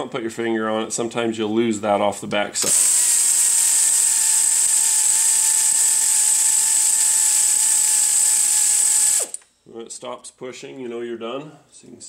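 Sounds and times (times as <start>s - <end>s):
air ratchet whining: 2.6s - 9.5s.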